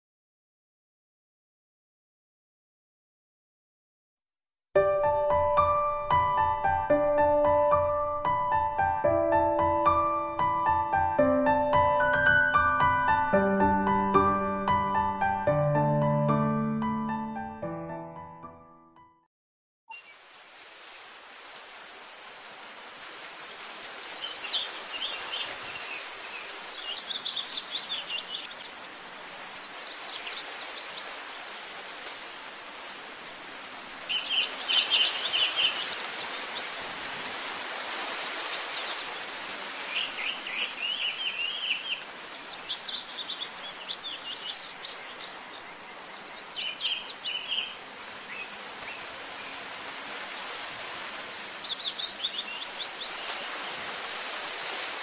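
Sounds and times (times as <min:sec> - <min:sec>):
outdoor ambience hiss: 0:19.9 - 0:55.0
birds chirping and trilling: 0:22.6 - 0:31.2, 0:33.8 - 0:53.8.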